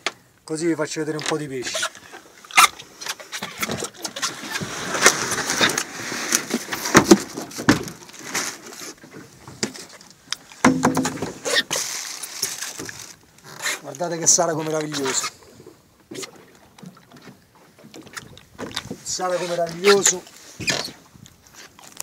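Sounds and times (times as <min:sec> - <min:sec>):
knocks and bumps on boat: 0:10.6 - 0:11.5, 0:16.9 - 0:19.1.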